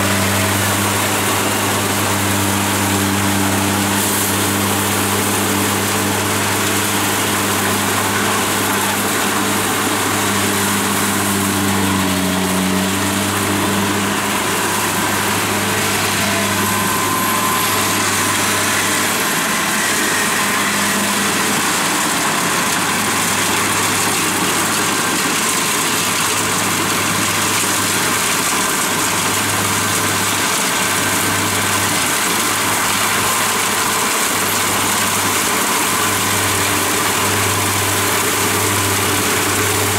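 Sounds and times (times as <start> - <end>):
combine harvester diesel engine: 0.0 - 39.9.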